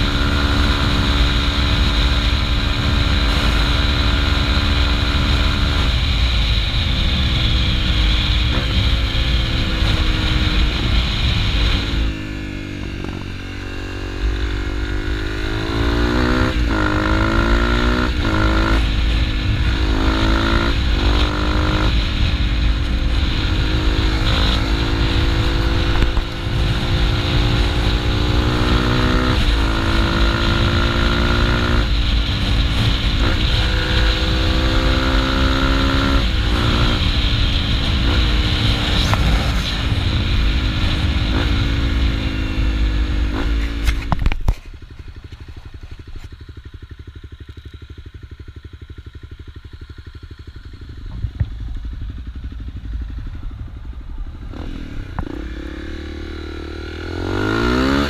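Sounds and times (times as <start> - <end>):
wind noise on microphone: 0.0 - 46.3
motorcycle engine: 0.0 - 58.0.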